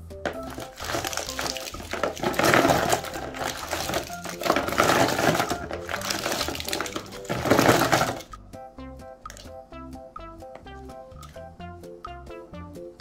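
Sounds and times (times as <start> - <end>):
plastic cups rattling and clattering: 0.2 - 8.3.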